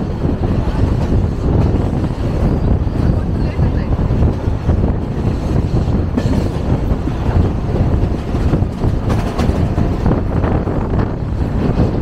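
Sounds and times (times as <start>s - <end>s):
train wheels rumbling on rails: 0.0s - 12.0s
clacks over rail joints: 3.1s - 12.0s.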